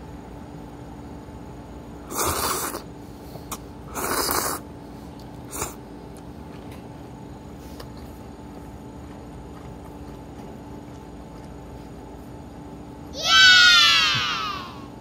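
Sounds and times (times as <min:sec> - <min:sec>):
person slurping noodles: 0:02.1 - 0:02.9, 0:03.9 - 0:04.6.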